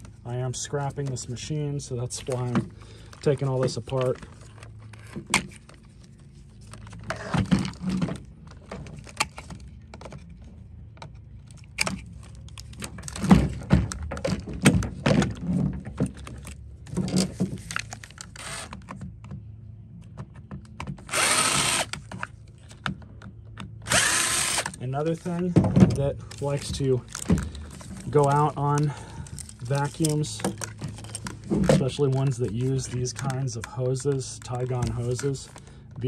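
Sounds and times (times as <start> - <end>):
cordless drill driving screw: 18.4 - 18.8, 21.1 - 22.0, 23.8 - 24.8.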